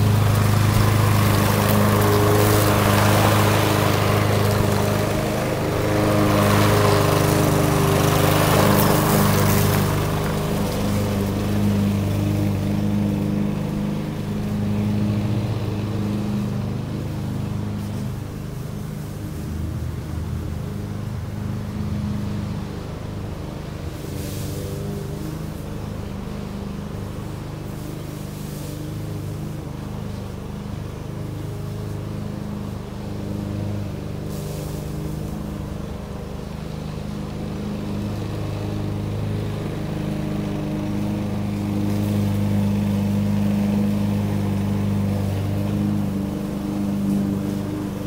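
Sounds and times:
lawn mower engine running: 0:00.0 - 0:48.0.

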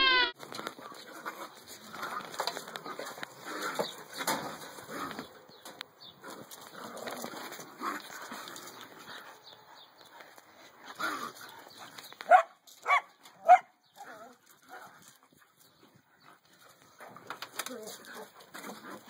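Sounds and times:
low scuffling: 0:00.4 - 0:19.0
dog barking: 0:12.3 - 0:13.7.

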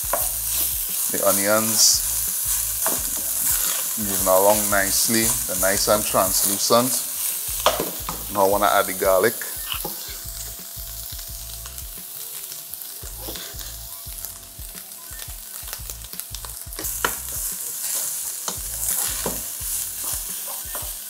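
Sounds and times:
meat and onions sizzling: 0:00.0 - 0:21.0
wooden spoon scraping pot: 0:02.5 - 0:04.0.

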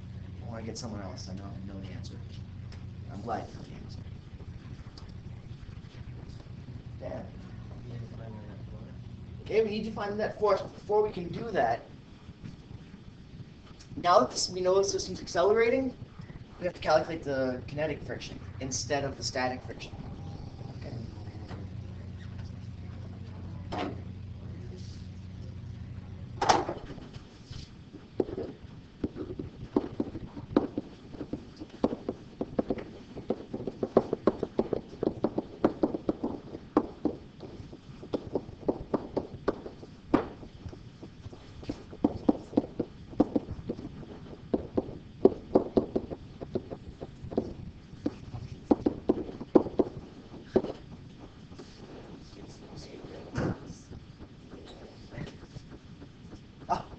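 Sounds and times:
low hum: 0:00.0 - 0:56.9
pen tapping on whiteboard: 0:28.2 - 0:40.4.

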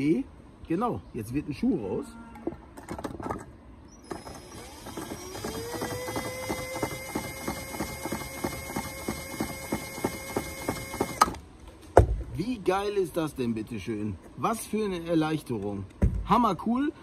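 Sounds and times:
cordless drill whine: 0:04.0 - 0:11.4.

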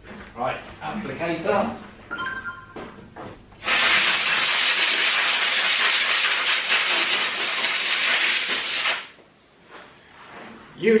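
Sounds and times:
air blow gun hissing: 0:03.6 - 0:09.2.

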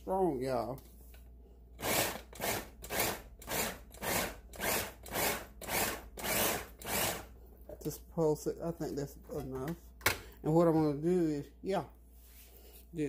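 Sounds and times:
electric food chopper pulsing: 0:01.8 - 0:07.3.

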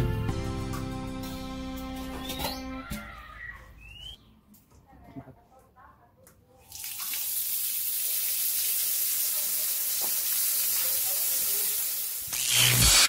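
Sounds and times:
water jet spraying on concrete: 0:07.1 - 0:13.0.

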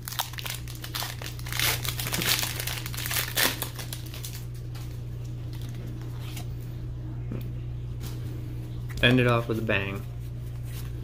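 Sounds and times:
foil wrapper crinkling and tearing: 0:00.0 - 0:04.9, 0:05.5 - 0:06.4.

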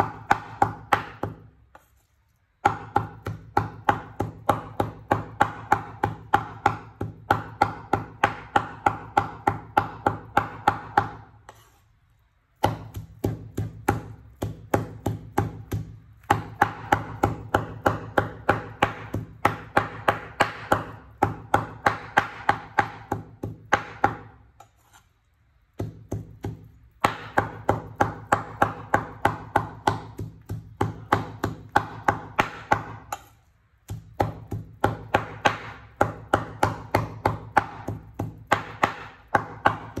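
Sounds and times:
knife chopping on wooden board: 0:00.0 - 0:01.9, 0:02.6 - 0:11.8, 0:12.6 - 0:25.0, 0:25.7 - 0:40.0.

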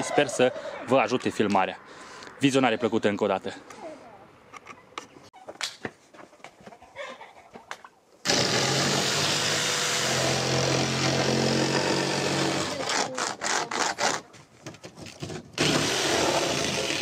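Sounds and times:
electric jigsaw cutting board: 0:08.2 - 0:14.2, 0:15.6 - 0:17.0.

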